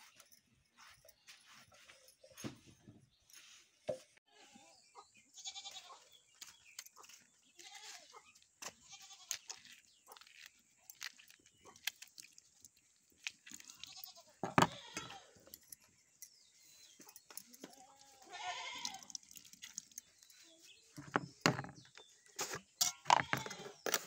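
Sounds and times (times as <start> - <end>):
goats bleating: 5.4 - 6.0, 17.7 - 19.2.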